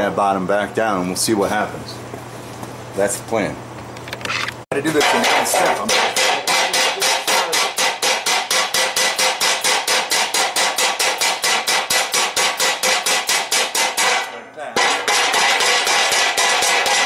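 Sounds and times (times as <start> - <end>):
hammer blows on hot steel: 5.0 - 17.0.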